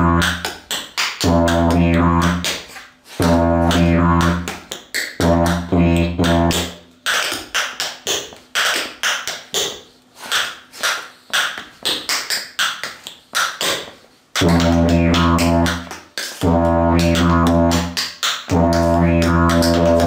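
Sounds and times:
didgeridoo drone: 0:00.0 - 0:00.4, 0:01.2 - 0:04.5, 0:05.2 - 0:06.8, 0:14.4 - 0:20.0
tap shoes tapping: 0:06.2 - 0:20.0.

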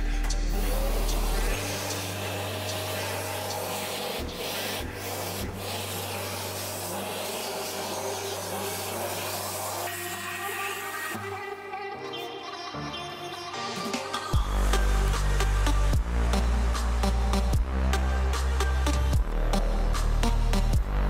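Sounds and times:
steady motor hum: 0:00.0 - 0:10.0
router bit cutting wood: 0:00.4 - 0:11.2.

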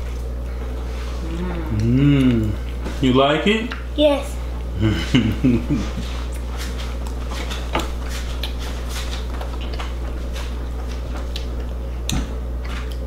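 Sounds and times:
chewing: 0:00.0 - 0:03.0, 0:06.0 - 0:13.0
low room hum: 0:00.0 - 0:13.0.

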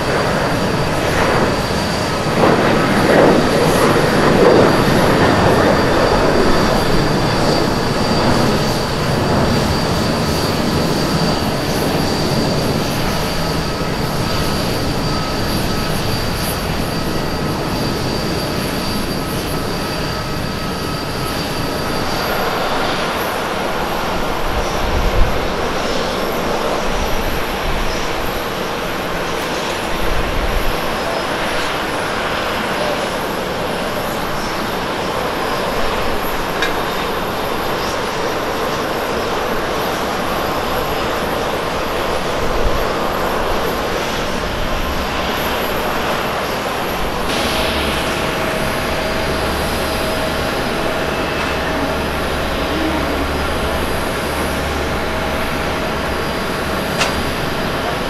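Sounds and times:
high jet whine: 0:00.0 - 0:58.0
jet engines roaring at takeoff: 0:00.0 - 0:58.0
airport apron hum: 0:45.9 - 0:58.0.

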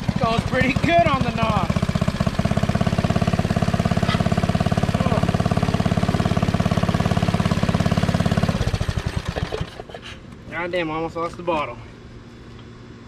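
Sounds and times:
go-kart engine running and stopping: 0:00.0 - 0:10.0.

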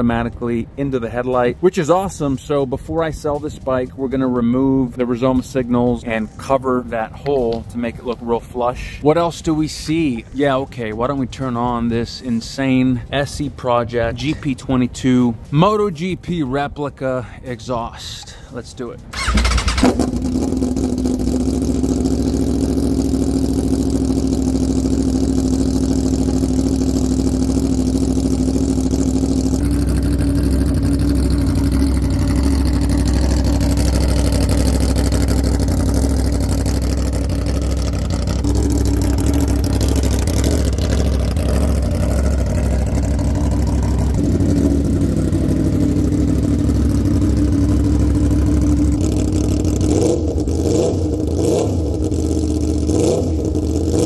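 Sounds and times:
engine revving: 0:19.1 - 0:54.0
motorcycle engine idling: 0:19.1 - 0:54.0.

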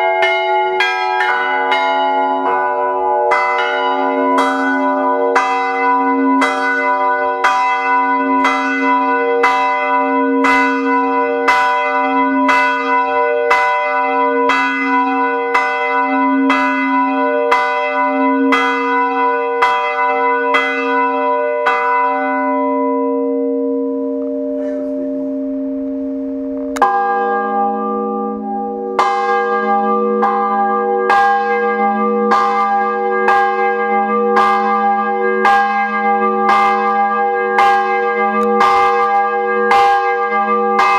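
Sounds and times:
swinging church bell ringing: 0:00.0 - 0:40.9
deeper bell striking: 0:21.6 - 0:40.9.

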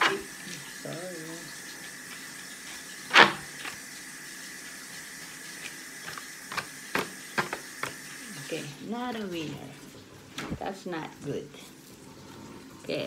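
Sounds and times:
paper crinkles and taps: 0:05.5 - 0:08.1.

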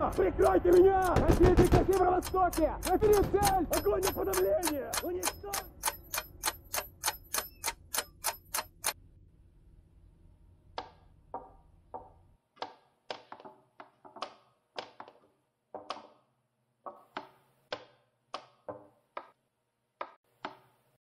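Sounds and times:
chess clock buttons pressed: 0:00.0 - 0:09.0
chess pieces clacking on board: 0:00.1 - 0:08.8.

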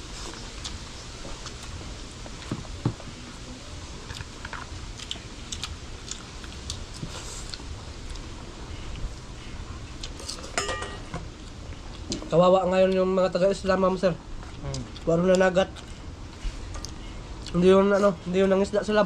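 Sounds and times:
steady low rumble: 0:00.0 - 0:10.3
person chewing: 0:00.2 - 0:02.8, 0:04.1 - 0:10.5, 0:14.4 - 0:17.6.

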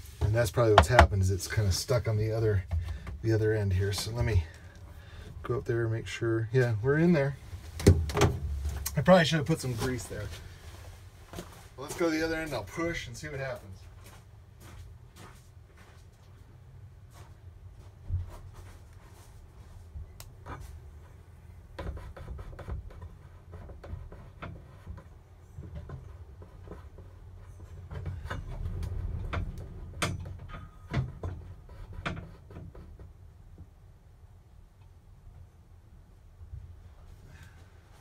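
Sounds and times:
gearshift rod knocking and rubbing: 0:00.2 - 0:01.2, 0:20.4 - 0:33.7.

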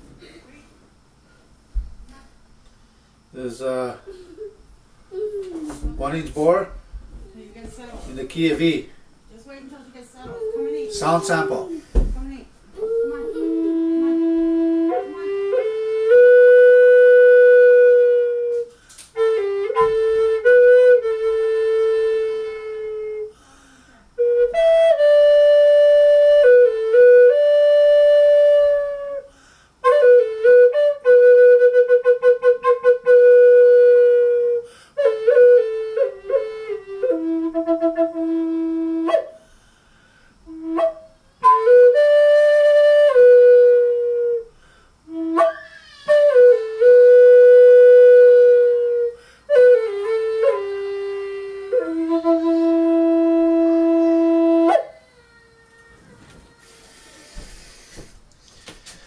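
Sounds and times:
solo flute melody: 0:12.8 - 0:23.4, 0:24.2 - 0:39.5, 0:40.5 - 0:55.0.

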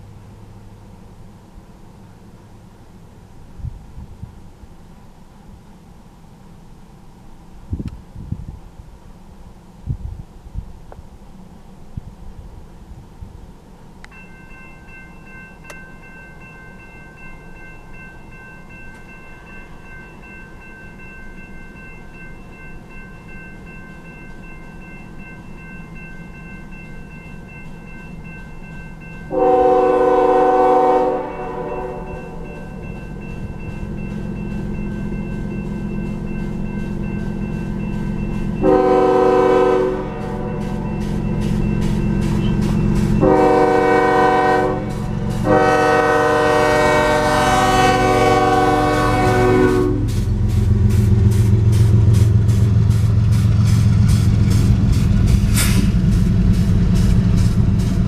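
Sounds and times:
freight train rumble: 0:00.0 - 0:58.0
crossing warning bell ringing: 0:14.0 - 0:58.0
locomotive air horn blasts: 0:29.3 - 0:32.5, 0:38.6 - 0:41.0, 0:42.4 - 0:50.3.

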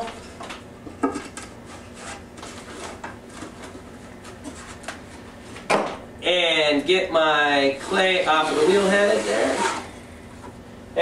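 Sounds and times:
faint steady hum: 0:00.0 - 0:11.0
clay scraping on potter's wheel: 0:07.5 - 0:10.0.

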